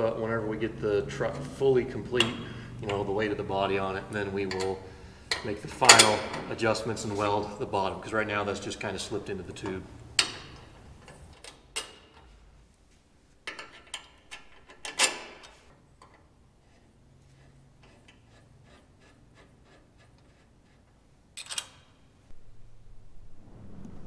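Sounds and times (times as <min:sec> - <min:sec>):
wrench clanking on metal: 0:04.2 - 0:06.6, 0:13.4 - 0:16.3, 0:21.4 - 0:22.0.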